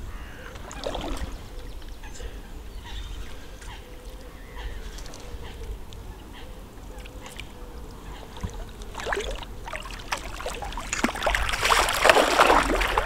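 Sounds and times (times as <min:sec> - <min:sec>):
fish splashing in water: 0:08.4 - 0:13.0.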